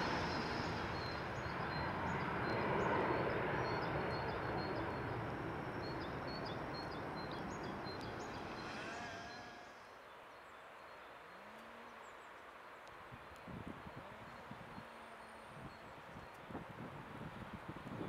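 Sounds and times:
jet engine climbing away: 0:00.0 - 0:09.9
small birds chirping: 0:00.0 - 0:16.5.

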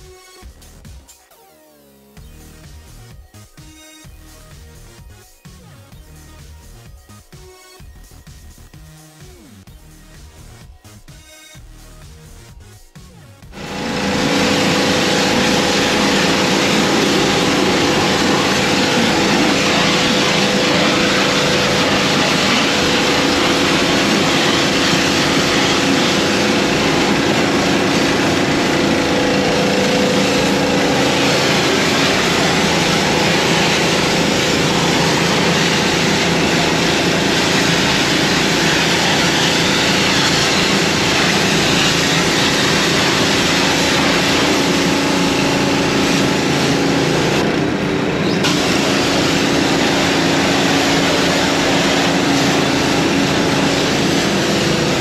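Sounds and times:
machine humming: 0:13.5 - 0:55.0.

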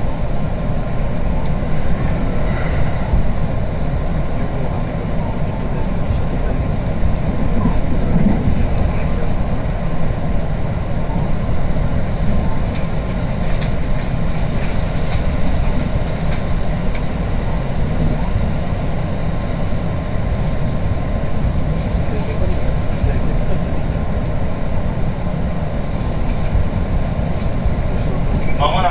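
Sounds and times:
electric train running rumble: 0:00.0 - 0:28.9.

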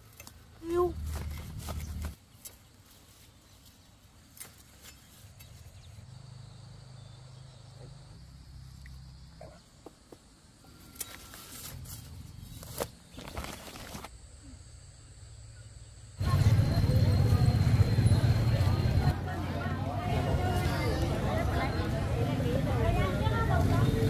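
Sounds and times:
faint insect drone: 0:05.1 - 0:19.1.

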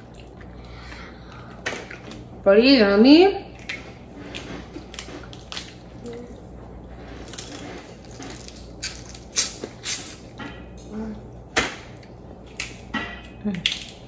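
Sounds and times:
eating sounds: 0:00.0 - 0:02.4
crawfish shells cracking: 0:04.8 - 0:05.9, 0:13.5 - 0:14.0.

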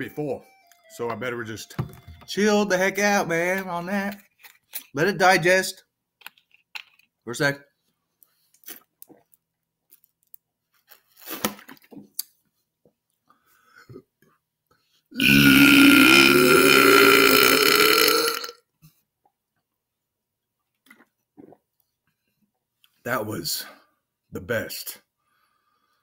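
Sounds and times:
man belching: 0:15.2 - 0:18.6.

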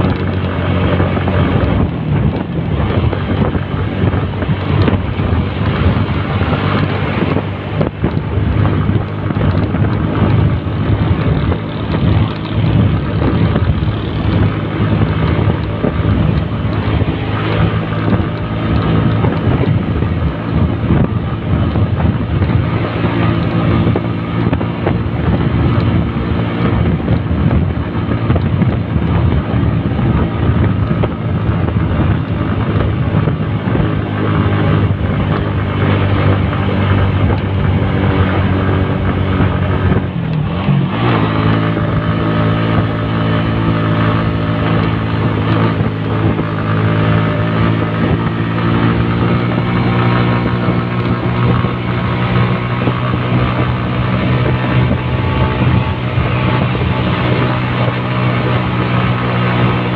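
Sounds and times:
motorcycle engine running: 0:00.0 - 0:59.9
wind buffeting microphone: 0:00.0 - 0:59.9.

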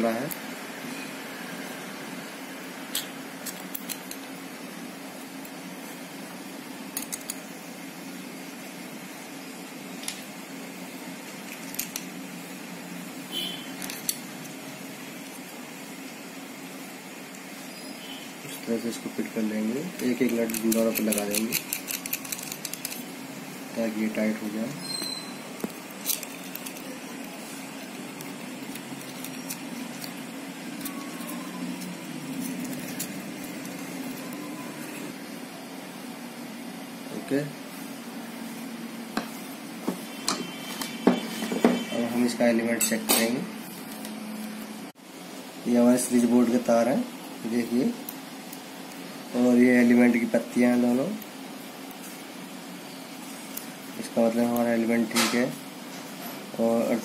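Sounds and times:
small metal parts clicking: 0:20.0 - 0:23.0, 0:26.0 - 0:26.9.

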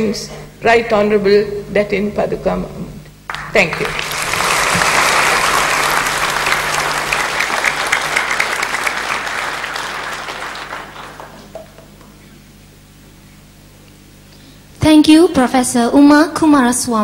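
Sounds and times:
audience applauding: 0:03.3 - 0:12.2.

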